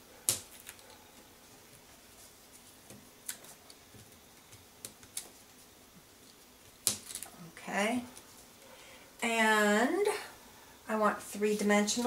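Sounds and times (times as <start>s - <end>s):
faint paper crafting clicks and taps: 2.5s - 5.4s.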